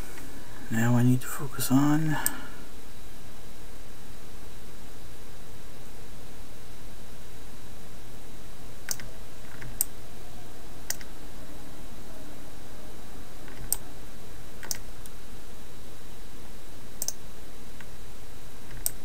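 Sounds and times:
steady hiss: 0:00.0 - 0:09.8.

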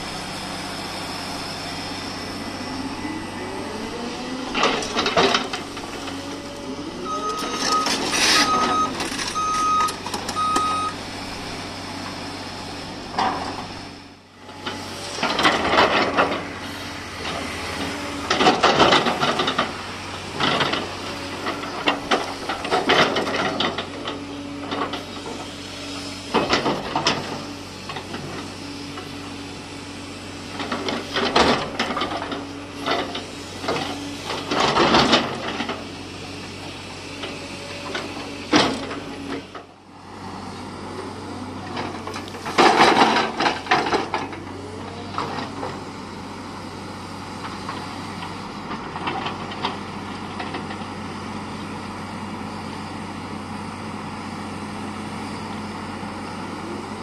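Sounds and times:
excavator diesel engine running: 0:00.0 - 0:57.0
bucket scraping dirt and stones: 0:07.5 - 0:09.6.

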